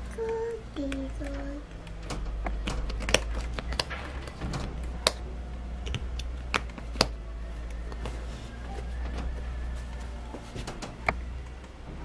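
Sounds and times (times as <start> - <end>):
wooden puzzle pieces clicking: 0.0 - 8.2.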